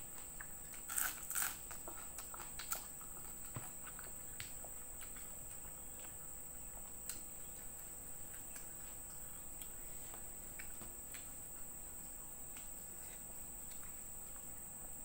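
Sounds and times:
soft chewing: 0.0 - 15.0.

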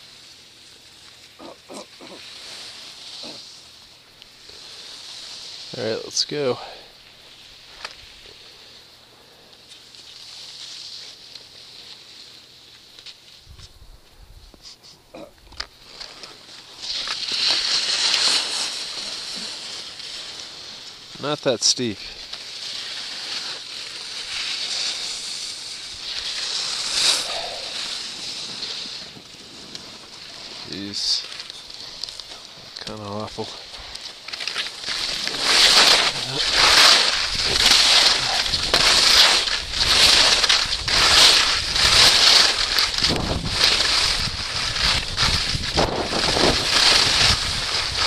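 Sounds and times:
skis scraping over snow: 0.0 - 8.8, 9.6 - 13.5, 15.8 - 48.0
wind buffeting microphone: 42.9 - 48.0.

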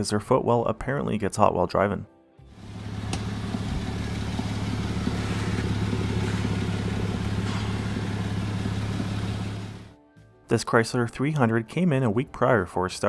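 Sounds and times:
car engine idling: 2.6 - 9.9.

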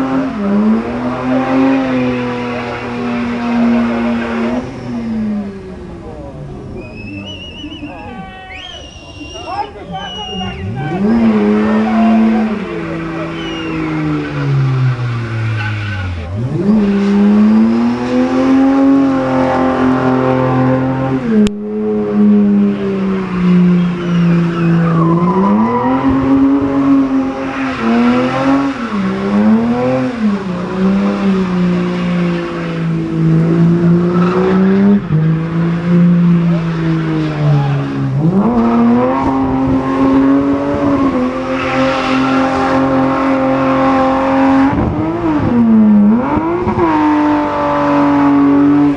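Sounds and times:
car engine at high revs: 0.0 - 8.1, 8.8 - 48.9
spinning tyres: 0.0 - 48.9.

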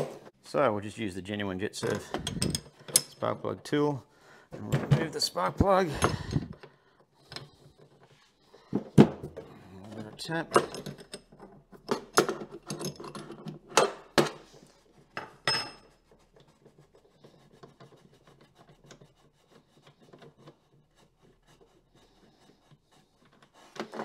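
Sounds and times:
metal tool clinking and scraping: 1.8 - 3.4, 9.8 - 14.0, 15.1 - 16.1.

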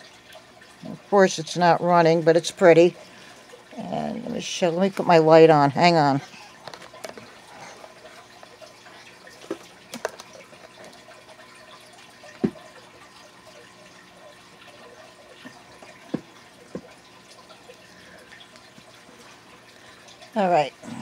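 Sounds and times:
small clicks and knocks: 9.4 - 11.0.

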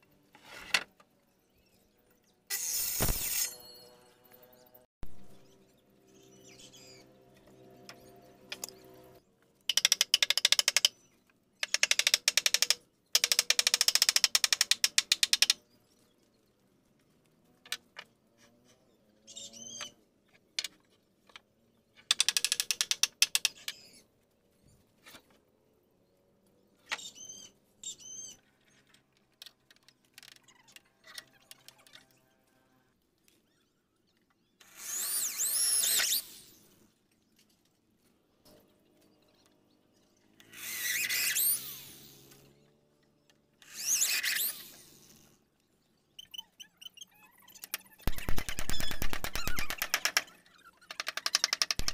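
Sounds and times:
rapid ratcheting clicks: 9.7 - 10.9, 11.6 - 15.6, 22.1 - 23.7, 51.0 - 51.9.

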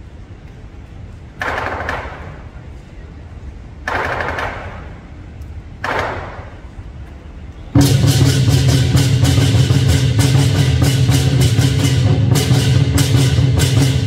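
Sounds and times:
cymbals rattling rolls: 6.4 - 14.0.

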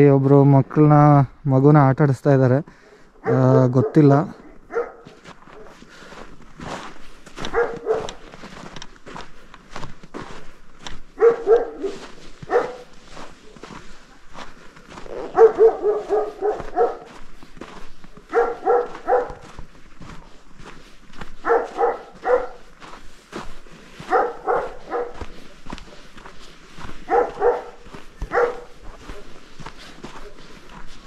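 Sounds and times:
footsteps: 2.7 - 31.0
dog barking: 3.1 - 5.8, 7.4 - 8.4, 11.1 - 13.8, 15.0 - 19.6, 20.6 - 23.0, 24.0 - 31.0.

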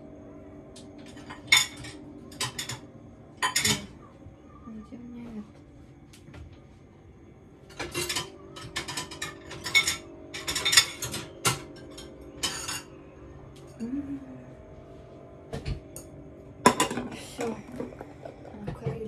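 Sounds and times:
dishes and cutlery clattering: 1.0 - 4.0, 7.7 - 13.0, 16.6 - 19.0.

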